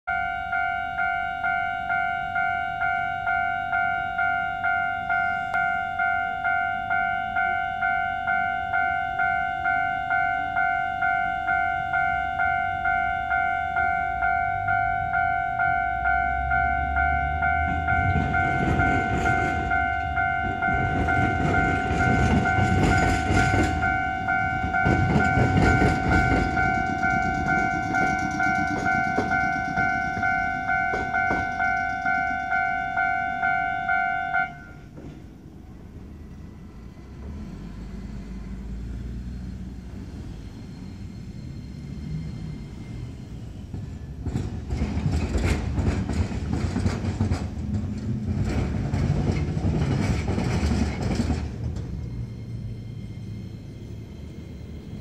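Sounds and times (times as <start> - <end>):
level crossing alarm dinging: 0.1 - 34.9
low traffic rumble: 0.1 - 55.0
train rumbling and clattering: 0.8 - 55.0
train wheels clacking: 16.8 - 33.6, 40.2 - 54.2.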